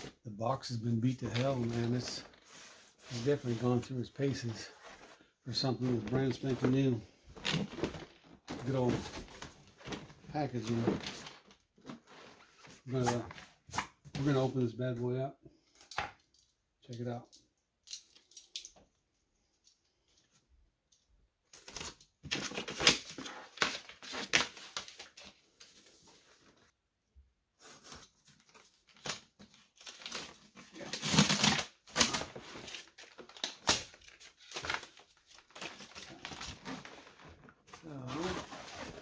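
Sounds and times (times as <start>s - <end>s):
cardboard scraping and rustling: 35.5s - 39.0s.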